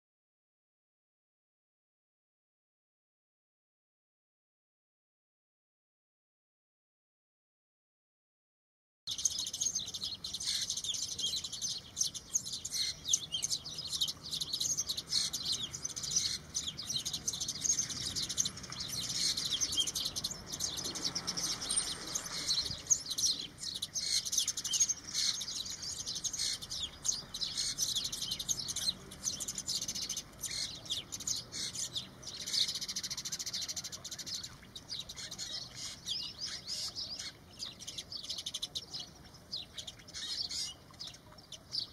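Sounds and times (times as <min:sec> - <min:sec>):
sparrows chirping: 0:09.1 - 0:41.9.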